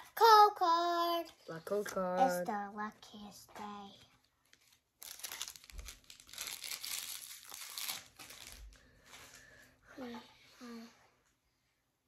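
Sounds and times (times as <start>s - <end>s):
foil wrapper crinkling: 4.2s - 9.4s.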